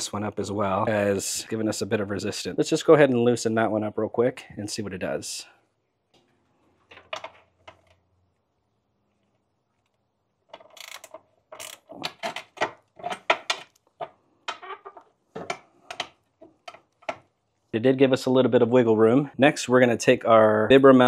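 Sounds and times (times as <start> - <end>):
ratchet wrench clicking: 10.7 - 11.8.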